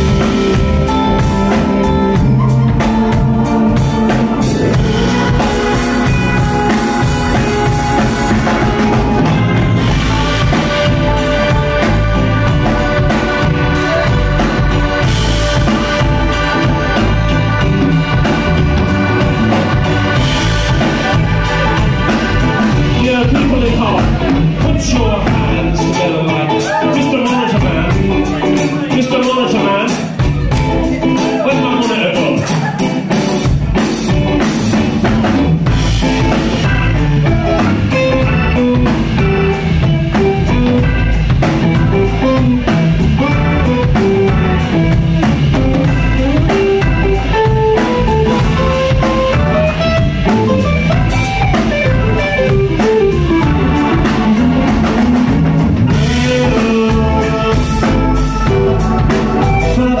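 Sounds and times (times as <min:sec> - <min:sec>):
melody line: 0:00.0 - 0:24.3
deep bass: 0:00.0 - 1:00.0
live band playing upbeat groove: 0:00.0 - 1:00.0.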